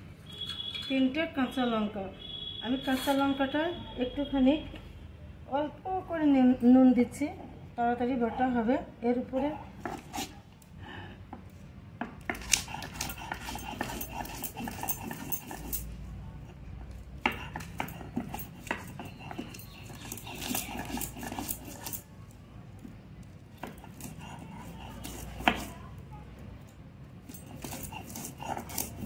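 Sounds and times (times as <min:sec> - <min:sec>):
stone pestle knocking and grinding: 0:12.0 - 0:15.9, 0:17.2 - 0:22.0.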